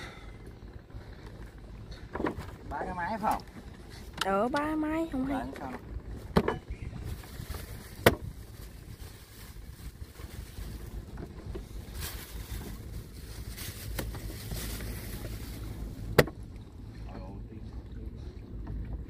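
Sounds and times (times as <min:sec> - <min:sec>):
water moving against hull: 0:00.0 - 0:19.0
wind buffeting microphone: 0:03.5 - 0:16.6.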